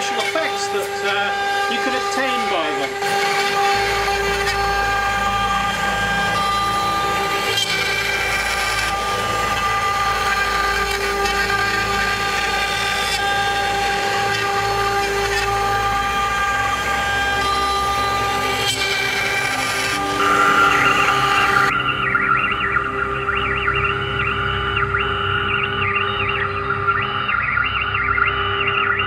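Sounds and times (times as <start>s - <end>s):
machine low hum shifting pitch: 0.0s - 29.0s
router spindle high whine: 0.0s - 29.0s.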